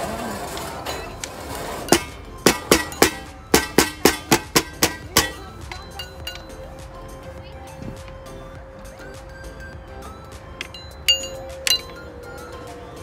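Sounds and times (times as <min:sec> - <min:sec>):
drum slapped by hand: 0:01.9 - 0:05.8.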